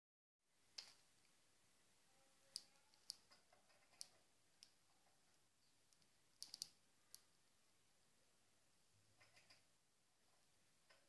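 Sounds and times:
birds pecking clicks and taps: 2.6s - 4.8s, 5.9s - 7.2s.

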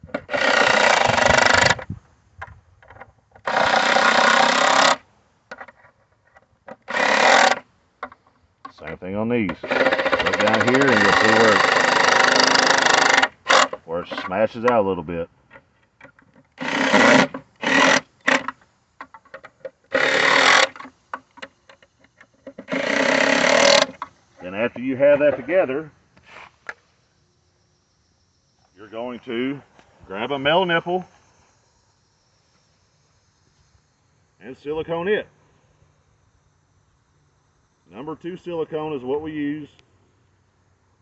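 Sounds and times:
impact driver hammering screws: 0.1s - 1.8s, 3.4s - 5.0s, 6.8s - 7.6s, 9.6s - 13.8s, 16.6s - 18.5s, 19.9s - 20.9s, 22.6s - 24.1s
handling clicks and taps: 18.3s - 19.8s.

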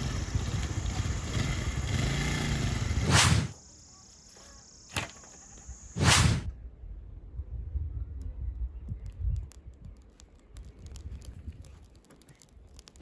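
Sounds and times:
motorcycle engine revving: 0.0s - 3.6s
quiet outdoor ambience: 0.0s - 13.0s.

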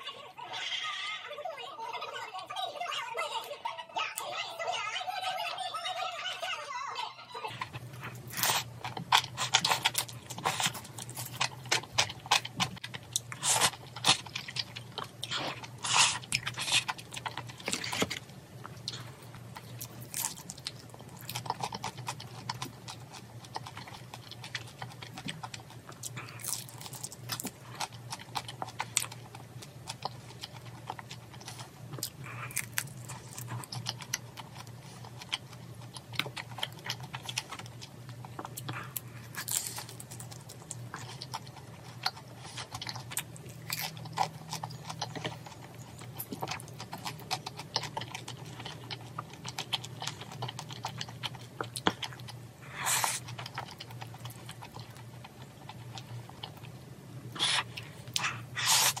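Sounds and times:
crunchy chewing: 7.5s - 59.0s.

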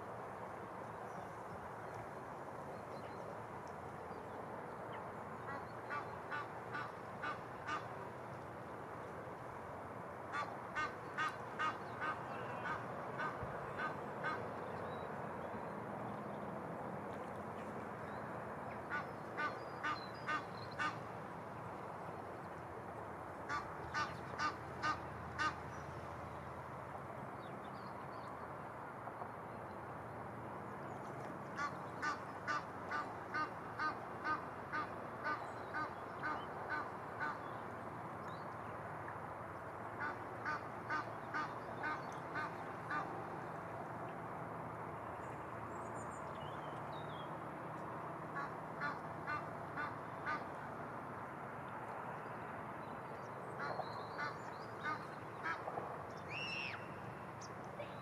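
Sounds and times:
river water flowing: 0.0s - 58.0s
waterfowl honking: 5.4s - 7.9s, 10.3s - 14.4s, 18.9s - 21.0s, 23.5s - 25.6s, 31.6s - 37.4s, 48.4s - 50.5s.

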